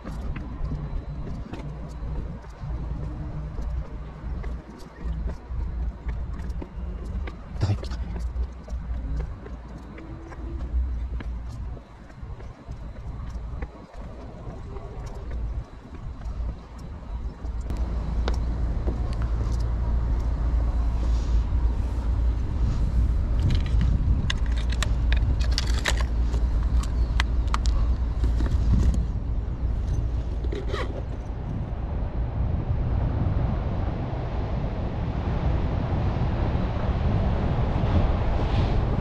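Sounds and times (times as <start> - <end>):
wind rumbling on microphone: 0.0 - 39.0
fishing tackle clicking in a bag: 23.4 - 27.8.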